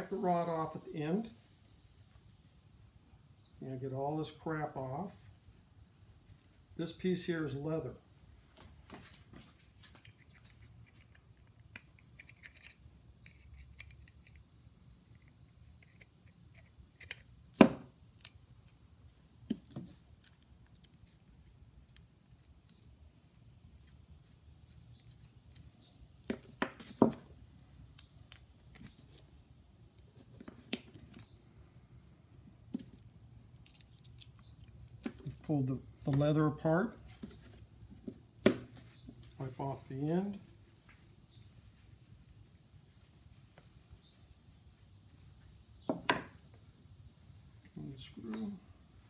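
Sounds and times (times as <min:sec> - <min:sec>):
metal parts clicking and scraping: 0:10.0 - 0:14.4
screwdriver prying: 0:10.2 - 0:14.4.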